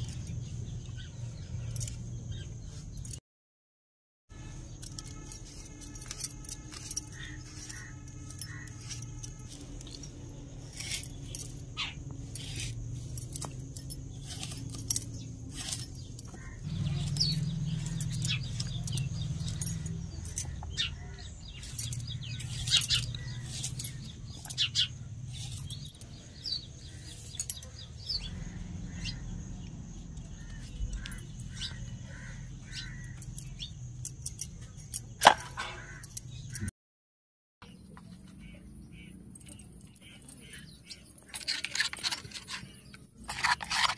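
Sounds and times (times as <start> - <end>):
birds chirping: 0.0 - 3.2, 4.3 - 36.7, 37.6 - 43.9
knife cutting gourd: 5.4 - 20.6.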